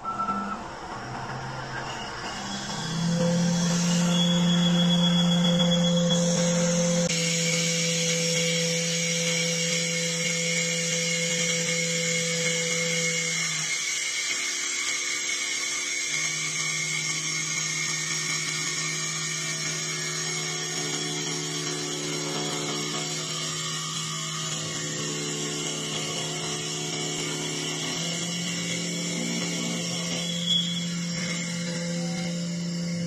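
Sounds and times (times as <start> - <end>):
low hum: 0.0 - 8.8
lathe spindle whine: 0.0 - 33.0
cutter shaving wood: 1.3 - 33.0.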